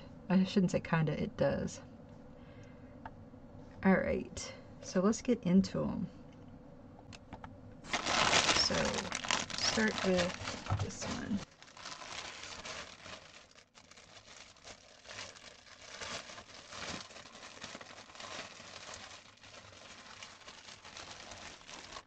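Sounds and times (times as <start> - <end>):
plastic bag crinkling: 7.9 - 22.0.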